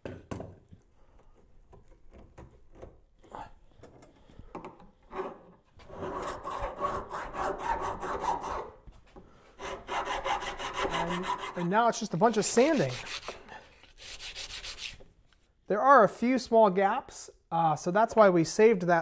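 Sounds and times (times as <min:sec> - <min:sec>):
file scraping copper wire: 0:05.1 - 0:08.7, 0:09.6 - 0:11.7, 0:12.3 - 0:15.0.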